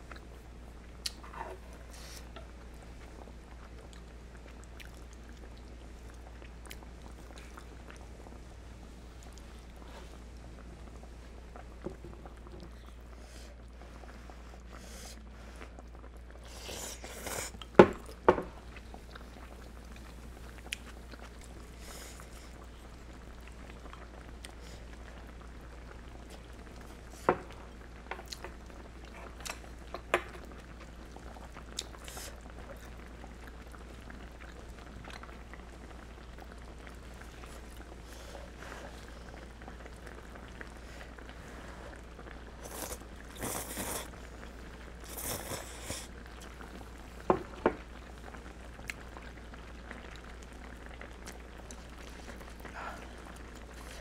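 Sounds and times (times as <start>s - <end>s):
chewing: 3.7s - 8.0s, 16.9s - 22.6s, 28.1s - 33.7s, 42.6s - 44.2s, 45.0s - 46.6s
broth slurping: 36.8s - 44.4s.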